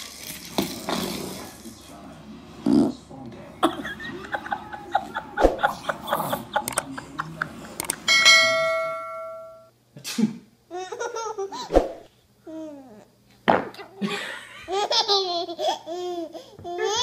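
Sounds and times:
bell chime: 8.1 - 9.7.

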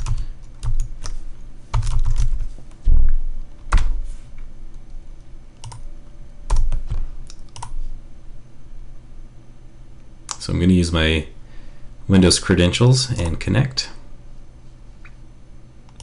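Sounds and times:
typing on keyboard: 0.0 - 2.4, 5.6 - 5.9, 6.5 - 7.8.

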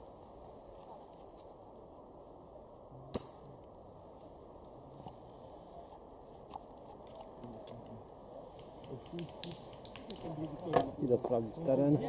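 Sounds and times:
airsoft rifle firing snap: 3.1 - 3.5.

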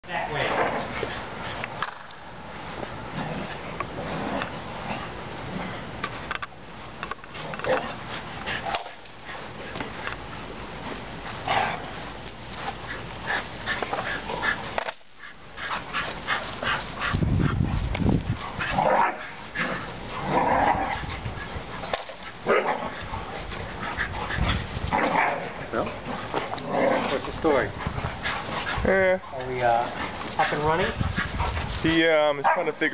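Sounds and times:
dogs barking and yipping: 11.4 - 32.9.

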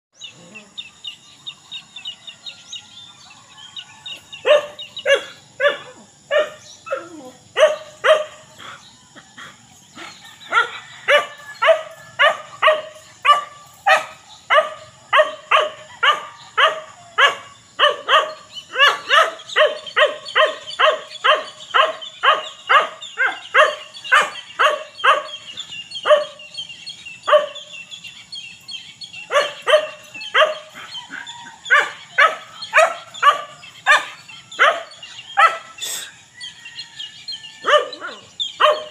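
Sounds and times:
dog barking: 4.4 - 8.8, 10.0 - 27.8, 29.2 - 36.1, 37.6 - 38.9.

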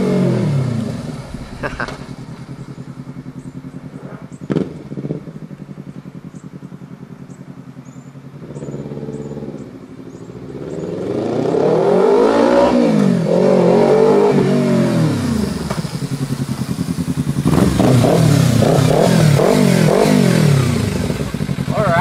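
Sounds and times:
motorcycle engine passing by: 0.0 - 22.0
motorcycle throttle blips: 1.0 - 11.4.

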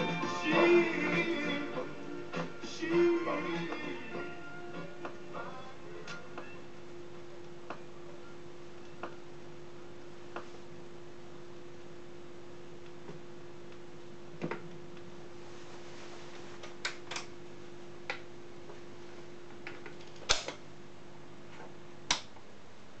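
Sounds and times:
record player motor hum: 0.0 - 23.0.

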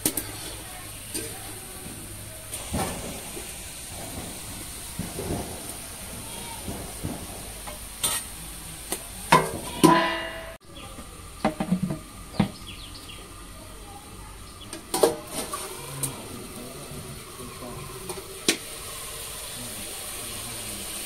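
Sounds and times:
low sizzle of frying: 0.0 - 21.0
spatula scraping a wok: 7.7 - 8.4
steel plates knocking: 9.3 - 10.6
metal ringing clanks: 9.4 - 10.6.

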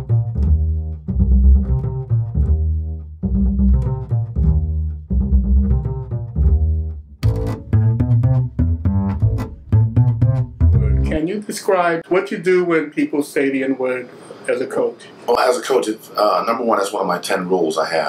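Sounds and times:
intro music with deep notes: 0.0 - 11.2.

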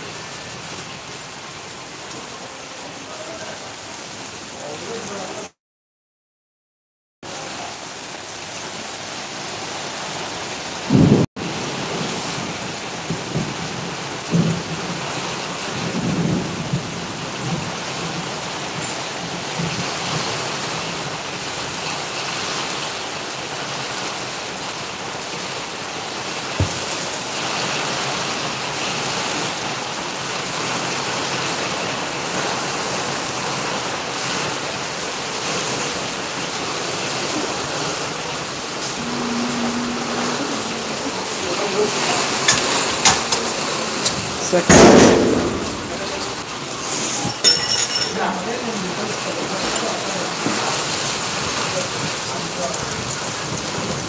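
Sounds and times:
heavy rain on wet paving: 0.0 - 5.6, 7.2 - 54.0
low rumbles: 38.4 - 46.8.

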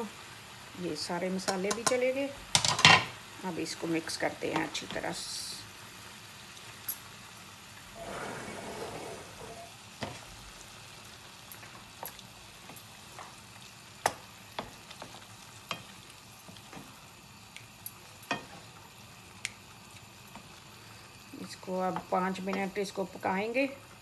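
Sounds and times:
food sizzling in oil: 0.0 - 24.0
spatula scraping a pan: 8.0 - 10.2.

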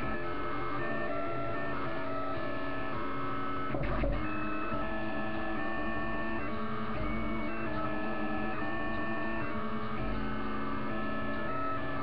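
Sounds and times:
stepper motors whining: 0.0 - 12.0.

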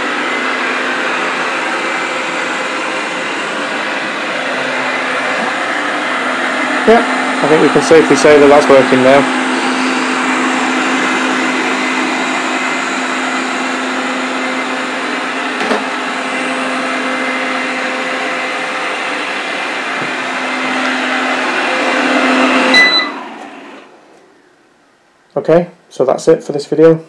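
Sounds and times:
robot vacuum motor hum: 0.0 - 24.3
short beep: 22.7 - 23.2.

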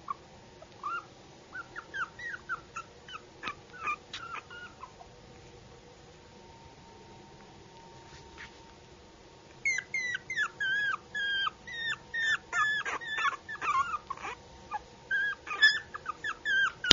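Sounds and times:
puppy whining: 0.0 - 5.1, 9.5 - 16.9.

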